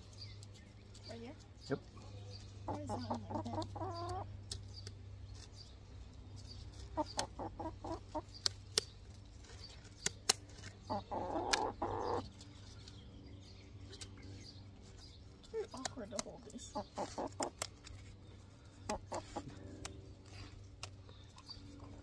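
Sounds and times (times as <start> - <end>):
hen clucking: 2.6 - 4.6, 6.7 - 8.6, 10.8 - 12.5, 15.6 - 17.8, 18.8 - 19.8
scissors snipping feathers: 2.7 - 5.7, 8.3 - 10.8, 15.4 - 18.1, 18.8 - 21.9.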